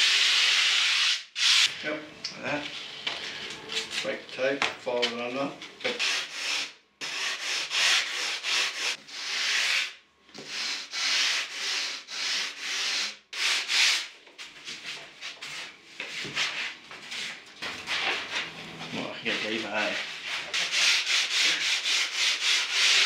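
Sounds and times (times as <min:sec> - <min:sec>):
hand sanding strokes: 0:00.0 - 0:01.7, 0:05.9 - 0:23.0.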